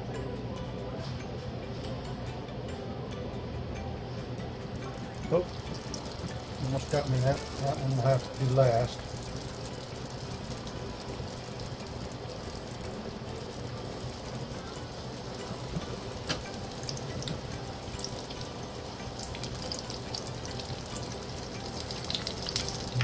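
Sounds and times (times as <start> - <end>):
food deep-frying in oil: 4.9 - 23.0.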